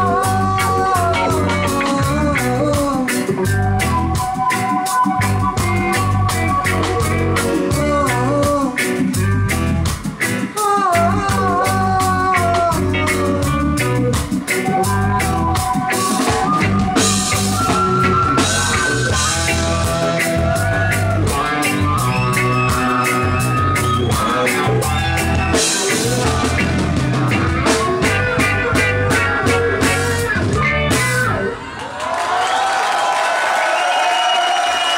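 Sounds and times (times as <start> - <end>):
woman singing: 0.0 - 3.5, 7.5 - 9.0, 10.6 - 14.1
reggae band playing: 0.0 - 31.8
crowd cheering: 14.7 - 34.9.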